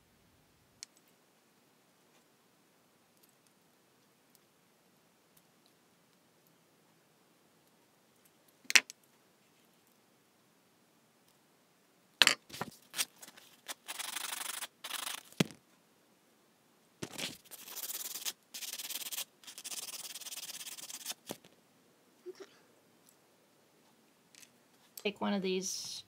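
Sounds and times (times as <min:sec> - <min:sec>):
sanding stick rasping on metal: 0:17.5 - 0:21.2.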